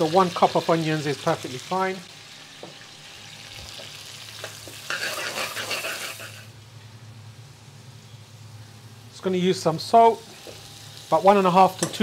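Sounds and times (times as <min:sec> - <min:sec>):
onions sizzling in a pan: 0:00.0 - 0:06.7, 0:07.4 - 0:12.0.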